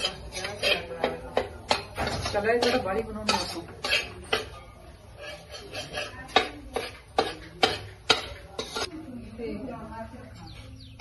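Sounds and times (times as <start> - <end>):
metal spatula scraping pan: 0.0 - 8.9
metal clinks on pan: 5.5 - 8.9.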